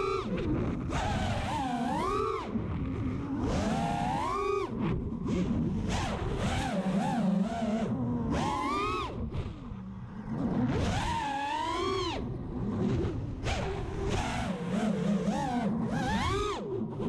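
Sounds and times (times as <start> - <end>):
quadcopter motors whining: 1.0 - 2.5, 5.8 - 9.3, 13.4 - 16.7.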